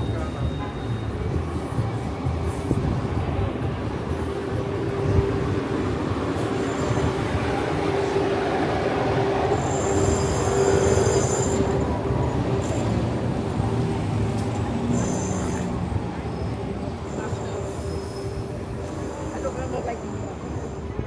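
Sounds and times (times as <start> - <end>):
high metallic squeal: 9.5 - 12.0, 14.9 - 19.4.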